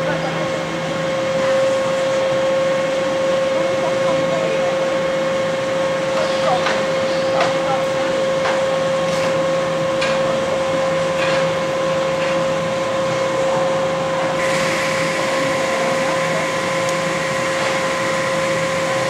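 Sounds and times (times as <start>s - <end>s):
coaster train rushing past: 0.0s - 19.0s
roller coaster mechanical hum: 0.0s - 19.0s.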